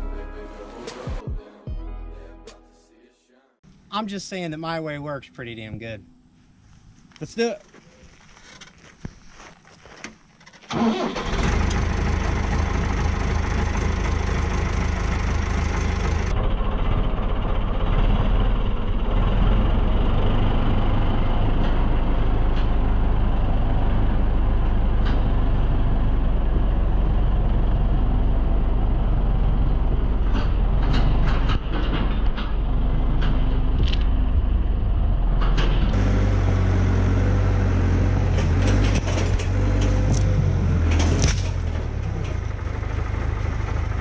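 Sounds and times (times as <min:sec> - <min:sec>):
vehicle engine starting and running: 0:10.4 - 0:44.0.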